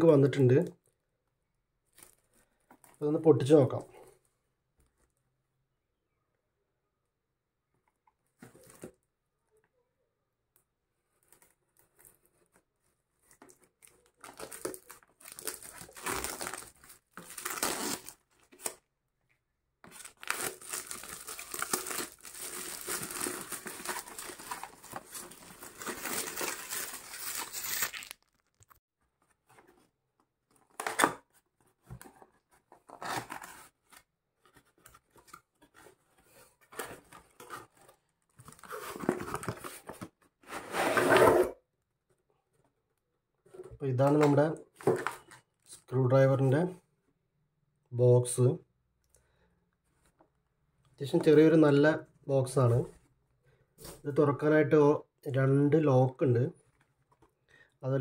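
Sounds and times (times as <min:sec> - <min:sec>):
plastic shrink wrap crinkling: 0:13.3 - 0:18.8, 0:19.9 - 0:28.8.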